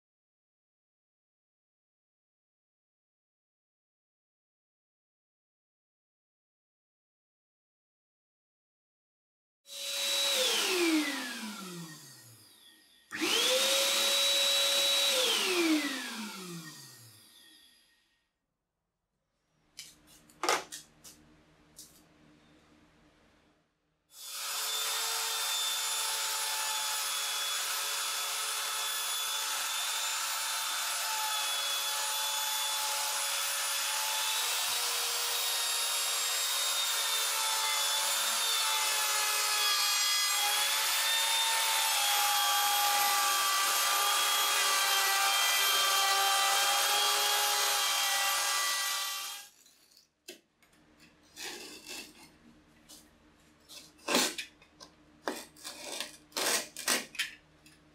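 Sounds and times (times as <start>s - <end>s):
electric router cutting wood: 9.7s - 17.8s, 24.2s - 49.5s.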